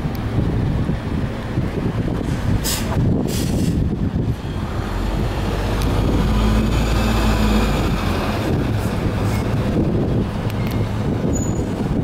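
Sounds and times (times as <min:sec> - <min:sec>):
bus diesel engine driving past: 0:00.2 - 0:12.0
short hiss: 0:02.6 - 0:03.8.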